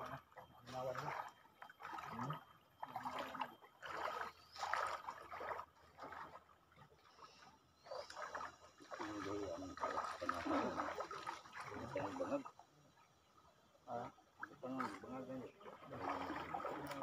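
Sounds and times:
water splashing and sloshing: 0.0 - 17.0.

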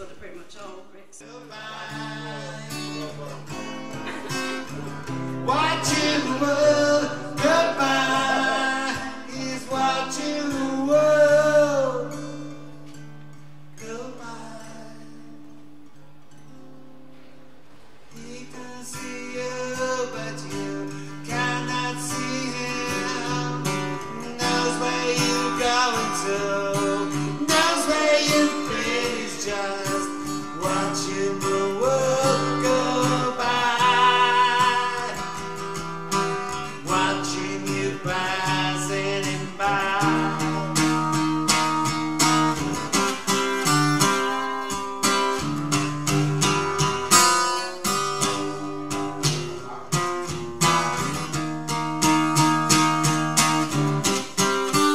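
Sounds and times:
acoustic guitar strumming: 0.0 - 54.9
person singing with vibrato: 1.2 - 3.1, 5.4 - 12.3, 18.2 - 35.6, 36.5 - 41.1.

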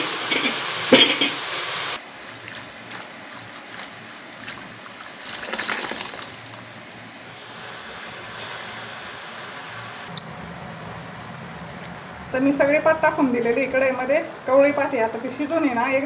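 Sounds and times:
water trickling and splashing: 2.0 - 6.8.

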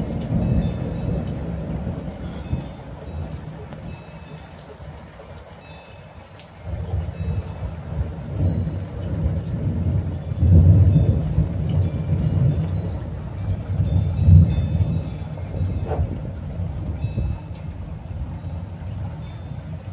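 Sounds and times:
thunder rumbling: 0.0 - 4.0, 6.7 - 19.9
rain falling: 0.0 - 19.9.

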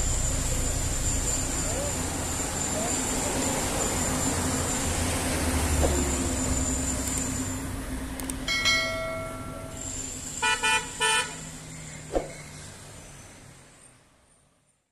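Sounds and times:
road traffic: 0.0 - 14.9
car horn ringing tone: 8.5 - 11.4
car horn honks: 10.4 - 11.4.

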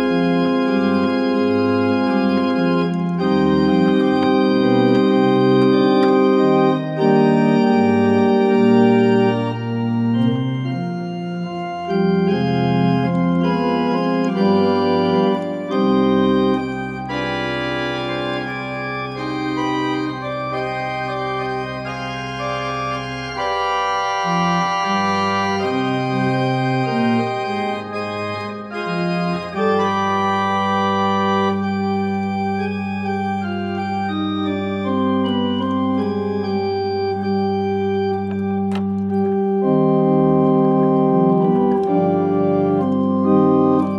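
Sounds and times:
pipe organ playing chords: 0.0 - 43.9.

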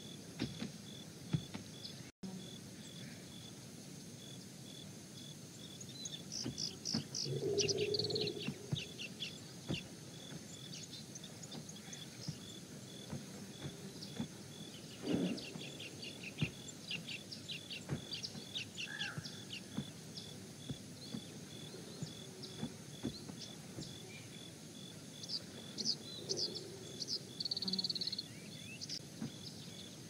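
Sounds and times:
high insect trill: 0.0 - 30.0
bird chirps: 5.6 - 24.5, 25.1 - 30.0.

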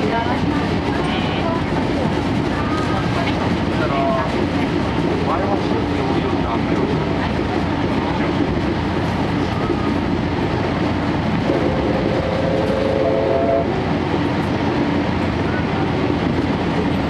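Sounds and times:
train wheels rolling on rails: 0.0 - 17.0.

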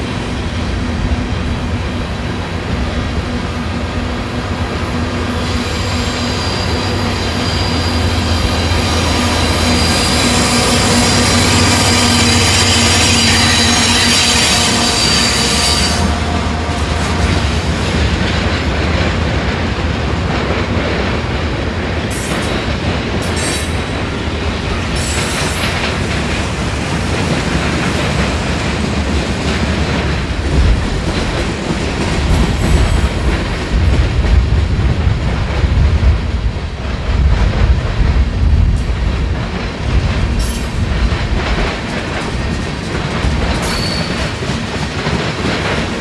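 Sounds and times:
freight train rumble: 0.0 - 46.0
high wheel squeals: 5.4 - 16.8, 43.5 - 44.3
wheels clacking over rail joints: 5.9 - 46.0.

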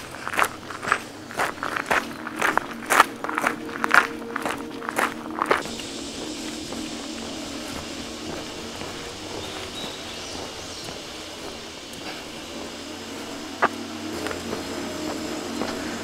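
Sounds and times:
faint high bird chirp: 1.6 - 13.4.

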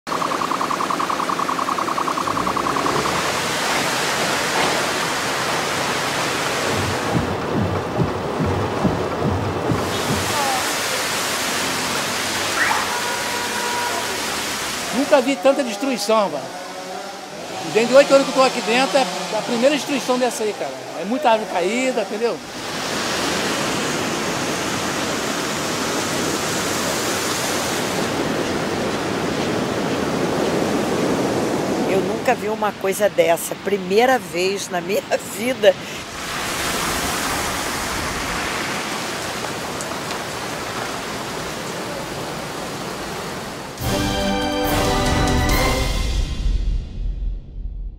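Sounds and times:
wind: 0.0 - 44.0
high pulsing beep: 0.1 - 3.5
heavy rain pouring: 0.1 - 32.3, 34.9 - 45.8
sea surf: 0.1 - 46.0.

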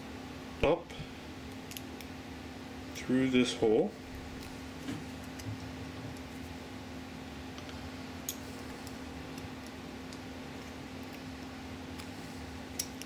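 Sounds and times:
steady low hum: 0.0 - 13.0
pliers and wire clicking on plastic: 12.7 - 13.0.

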